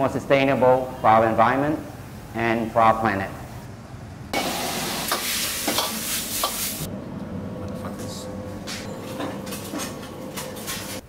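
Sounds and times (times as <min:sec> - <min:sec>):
stir-fry sizzling in a wok: 0:04.4 - 0:06.9.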